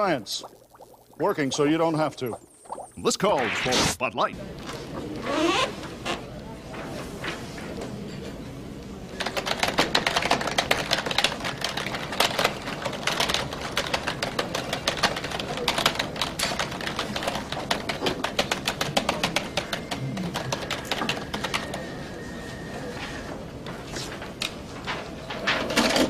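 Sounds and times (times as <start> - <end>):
fast typing on keyboard: 9.2 - 22.1.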